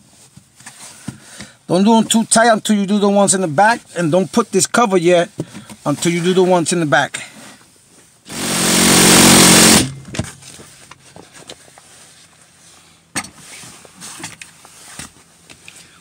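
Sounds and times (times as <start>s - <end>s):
impact gun running: 8.3s - 10.3s.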